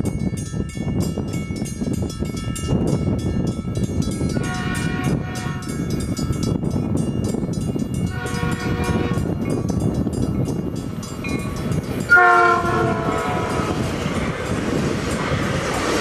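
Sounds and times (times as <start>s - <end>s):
train approaching: 0.0s - 16.0s
train horn blasts: 4.4s - 5.8s, 8.1s - 9.4s, 12.1s - 14.2s.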